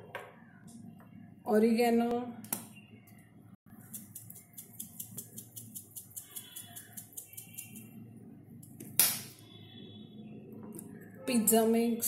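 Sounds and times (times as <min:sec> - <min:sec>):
herbs shaken from plastic shaker: 0:03.8 - 0:07.9.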